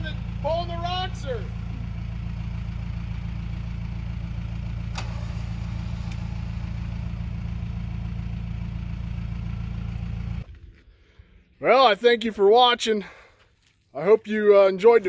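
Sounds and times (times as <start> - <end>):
diesel engine idling: 0.0 - 10.5.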